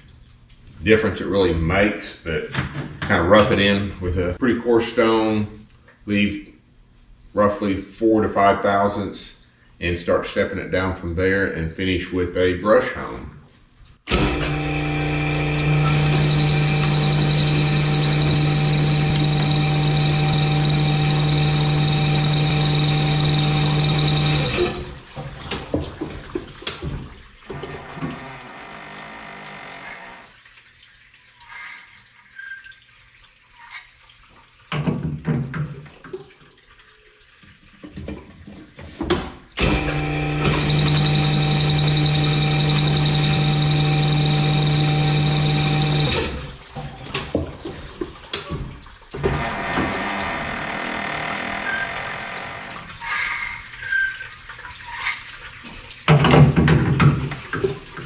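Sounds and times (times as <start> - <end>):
honing machine running: 14.1 - 24.8, 27.6 - 30.3, 39.6 - 46.4, 49.3 - 52.9.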